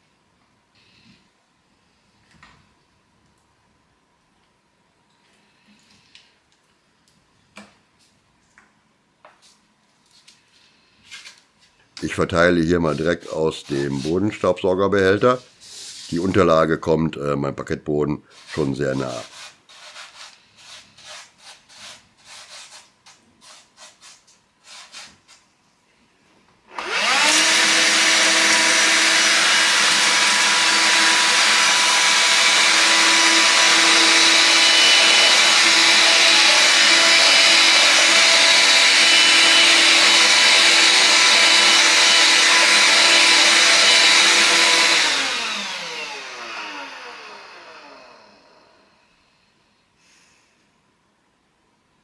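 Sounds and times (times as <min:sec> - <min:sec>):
handheld vacuum cleaner running: 0:26.7 - 0:48.8.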